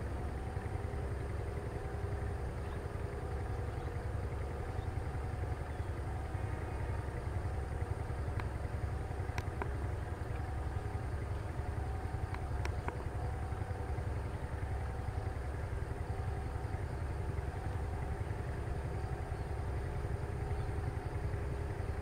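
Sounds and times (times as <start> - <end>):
locomotive engine rumbling: 0.0 - 22.0
sharp clicks: 9.3 - 9.8, 12.3 - 13.1.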